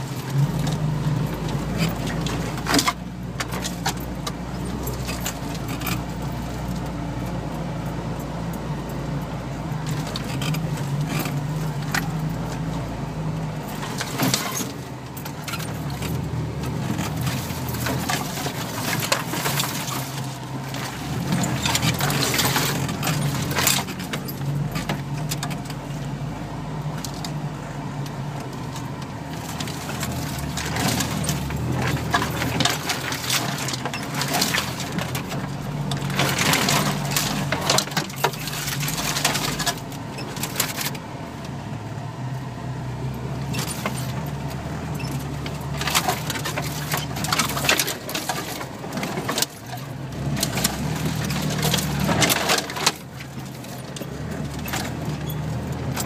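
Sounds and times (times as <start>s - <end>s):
vehicle engine drone: 0.0s - 56.0s
vehicle body jolting: 9.7s - 25.9s, 28.6s - 41.0s, 43.3s - 56.0s
loose items rattling: 29.4s - 41.0s, 43.5s - 56.0s.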